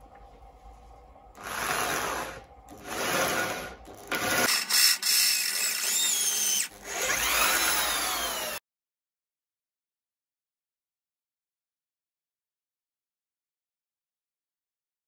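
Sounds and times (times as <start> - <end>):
electric drill boring into steel: 1.4 - 8.6.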